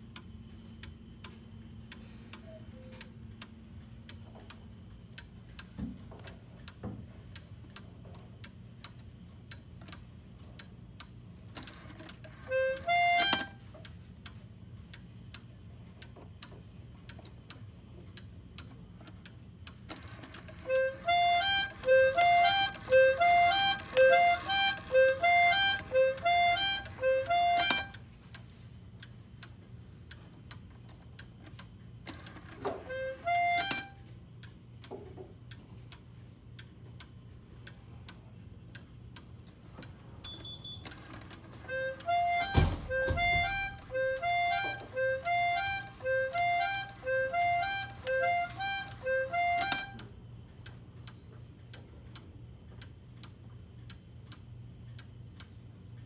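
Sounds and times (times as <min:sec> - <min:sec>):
clock ticking: 0:00.0 - 0:56.0
cuckoo clock horn call: 0:32.8 - 0:34.0, 0:41.6 - 0:50.0.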